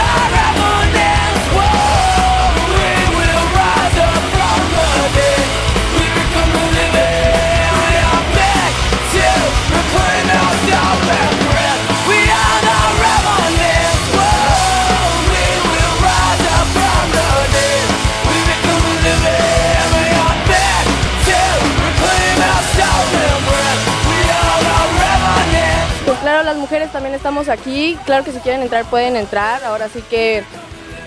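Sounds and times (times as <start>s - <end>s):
person singing: 0.0s - 29.2s
rock music: 0.0s - 31.0s.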